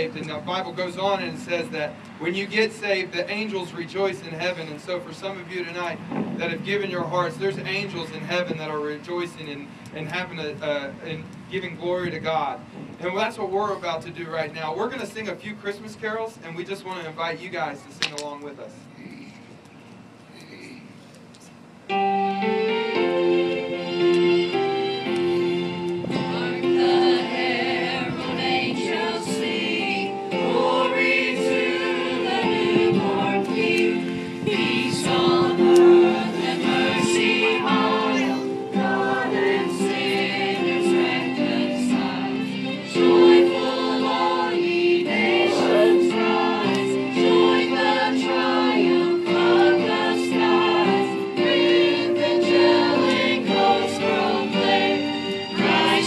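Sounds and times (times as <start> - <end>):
group singing a carol: 21.9 - 56.0.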